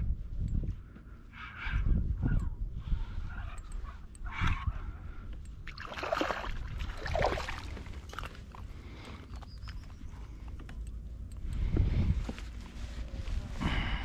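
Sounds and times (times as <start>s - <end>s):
steady low rumble: 0.0s - 14.0s
light clicks: 8.0s - 12.8s.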